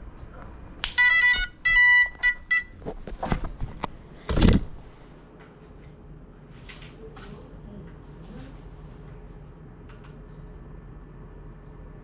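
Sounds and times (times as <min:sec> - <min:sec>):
drone electronic beep tune: 0:01.0 - 0:02.7.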